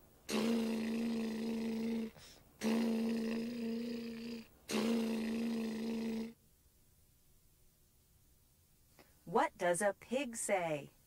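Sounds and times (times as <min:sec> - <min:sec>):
boy buzzing lips like engine: 0:00.2 - 0:06.4.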